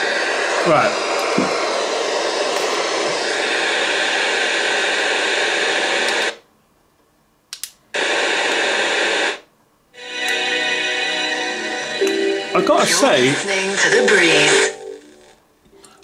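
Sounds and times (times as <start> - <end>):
radio static hiss: 0.0 - 6.4, 8.0 - 9.5, 12.6 - 15.4
faint radio tones: 12.6 - 16.0.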